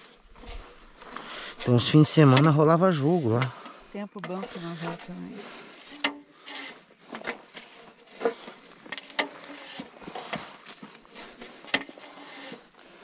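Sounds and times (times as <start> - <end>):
clicks taps and rustling: 3.3 - 5.1.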